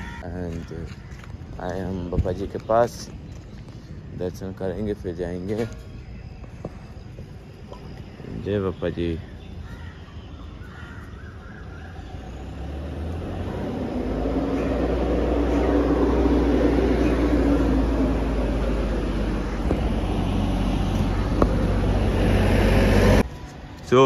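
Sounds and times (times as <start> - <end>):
large vehicle engine rumble: 10.9 - 23.9.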